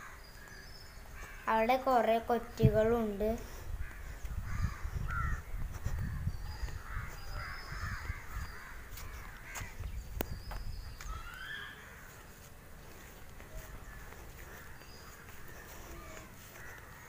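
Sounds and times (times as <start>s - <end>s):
crows cawing: 0.0s - 1.5s, 3.8s - 5.5s, 6.5s - 9.8s, 11.0s - 12.4s, 13.4s - 17.0s.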